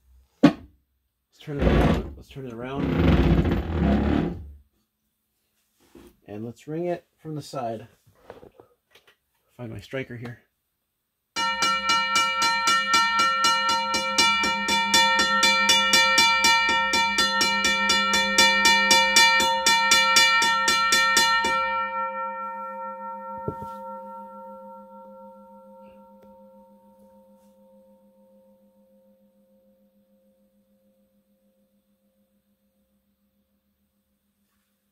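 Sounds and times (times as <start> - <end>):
crossing bell struck by hand: 11.4 - 28.4.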